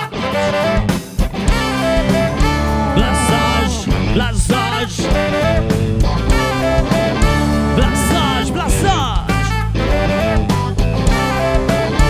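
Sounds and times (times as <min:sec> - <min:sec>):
bass guitar: 0:00.0 - 0:12.0
drums: 0:00.0 - 0:12.0
electric guitar: 0:00.0 - 0:12.0
saxophone: 0:00.0 - 0:12.0
trumpet: 0:00.0 - 0:12.0.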